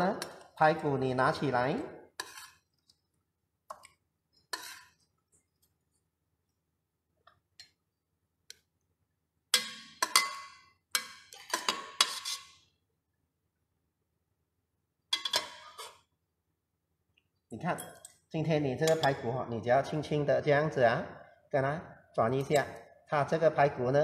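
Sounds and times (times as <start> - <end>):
metal ladle clinking on pot: 9.5 - 12.4, 15.1 - 15.9, 18.8 - 19.3.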